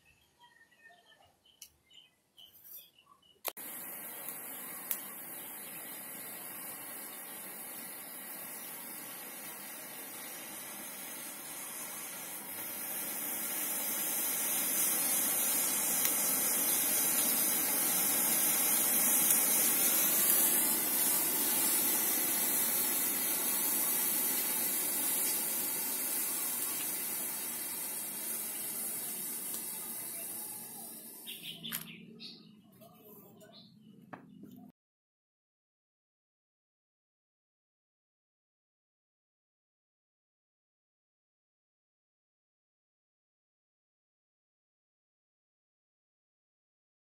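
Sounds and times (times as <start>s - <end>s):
smoke bomb hissing: 3.5s - 31.8s.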